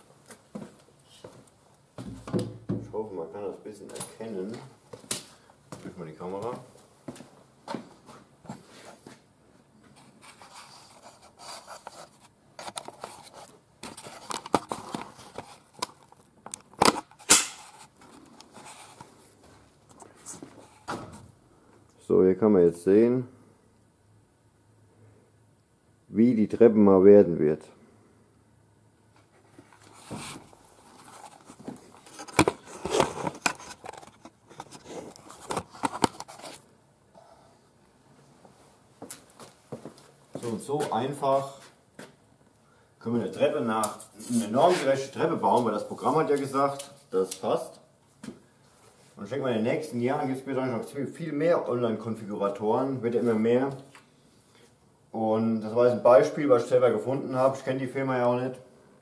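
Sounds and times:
camera handling rustling: 11.8 - 19.1, 29.7 - 36.6.

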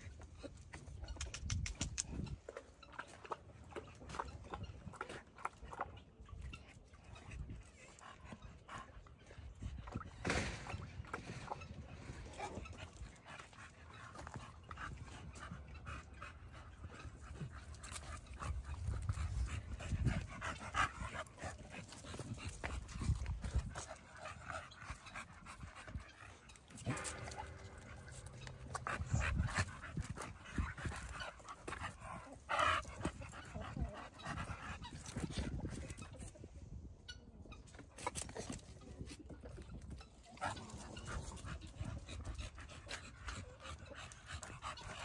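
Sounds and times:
dog panting: 11.0 - 36.3, 39.5 - 45.0.

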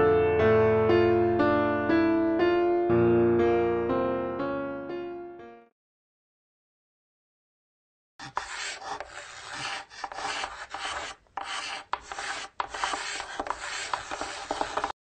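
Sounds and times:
chalk scratching on chalkboard: 8.2 - 15.0
chalk taps: 8.2 - 15.0.

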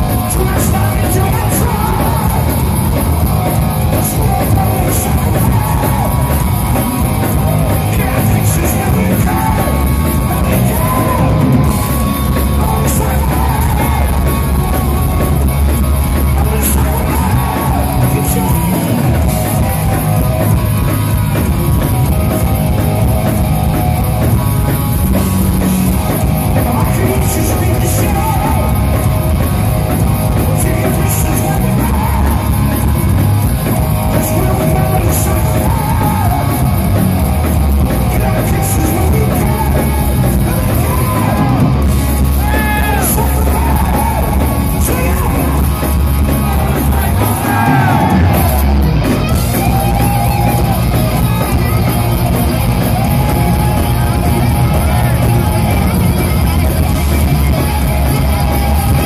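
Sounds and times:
lead vocals: 0.0 - 24.4, 25.2 - 51.8
heavy metal band playing: 0.0 - 59.0.

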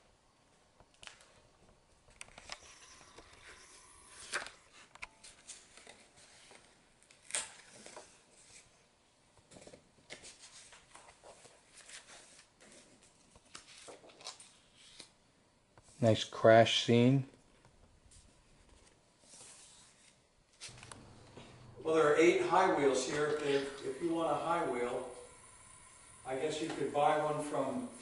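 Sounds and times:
pages turning by hand: 2.1 - 8.8, 9.5 - 15.2, 18.1 - 25.0
sharp page flips: 2.2 - 8.7, 9.5 - 15.2, 18.6 - 21.1, 22.8 - 24.9.

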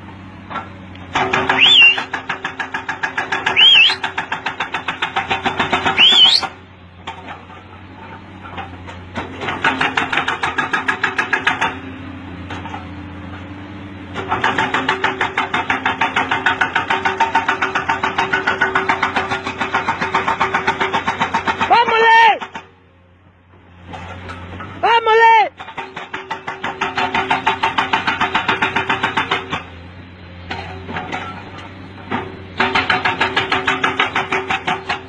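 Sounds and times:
low engine hum: 0.0 - 10.6
machinery pounding rock: 14.2 - 22.7, 25.6 - 29.7, 32.0 - 35.0.

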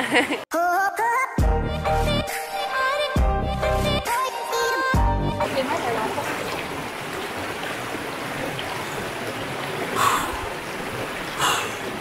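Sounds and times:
river water running: 4.6 - 12.0.

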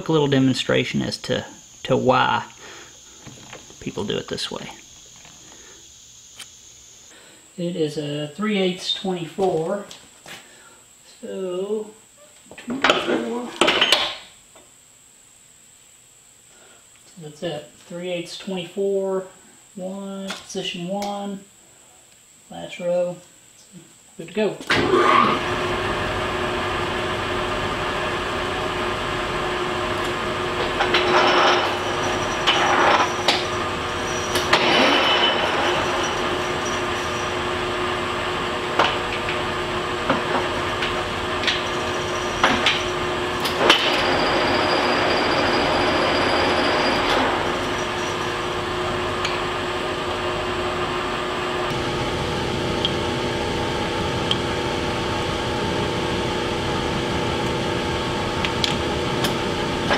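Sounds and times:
lathe gear hum: 24.8 - 59.9.

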